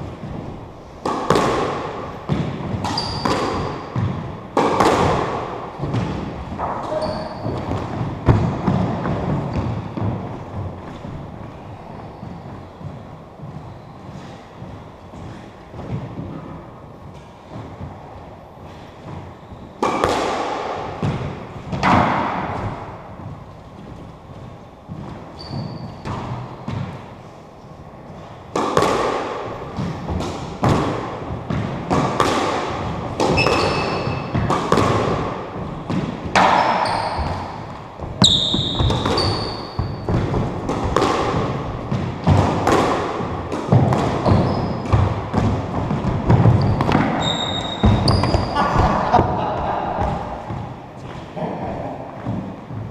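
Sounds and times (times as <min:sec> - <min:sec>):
squash ball hitting rackets and walls: 0:00.0 - 0:52.9
shoes squeaking on wooden floor: 0:02.3 - 0:04.2, 0:05.8 - 0:19.8, 0:23.2 - 0:26.7, 0:33.2 - 0:34.4, 0:35.6 - 0:40.8, 0:44.2 - 0:49.0.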